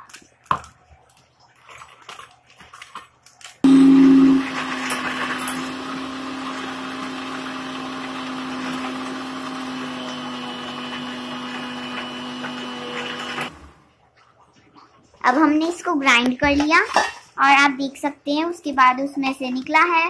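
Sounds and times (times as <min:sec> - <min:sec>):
mixer grinder motor whir: 0:03.6 - 0:13.9.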